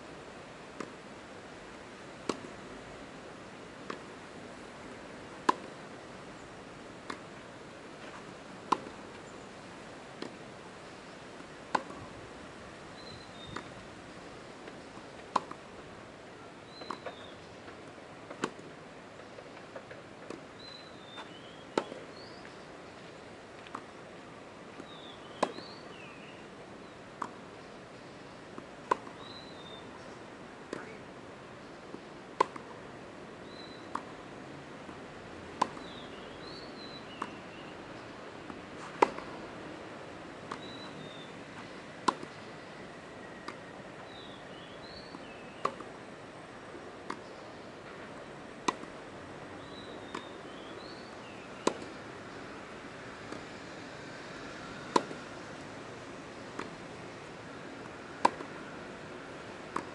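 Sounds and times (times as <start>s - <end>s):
racquets striking tennis ball: 0.7s - 1.0s, 2.2s - 2.6s, 3.8s - 4.1s, 5.4s - 5.8s, 7.0s - 7.4s, 8.0s - 9.2s, 10.1s - 10.4s, 11.4s - 12.1s, 13.5s - 13.8s, 14.6s - 15.6s, 16.7s - 18.8s, 19.4s - 20.5s, 21.2s - 22.1s, 24.7s - 25.8s, 27.2s - 27.4s, 28.5s - 29.5s, 30.6s - 31.0s, 31.9s - 32.8s, 33.8s - 34.2s, 34.8s - 37.5s, 38.5s - 39.4s, 40.4s - 42.4s, 43.4s - 44.2s, 45.1s - 46.0s, 47.0s - 49.0s, 49.6s - 50.9s, 51.6s - 52.0s, 54.8s - 55.4s, 56.5s - 57.0s, 57.8s - 58.7s, 59.6s - 59.9s.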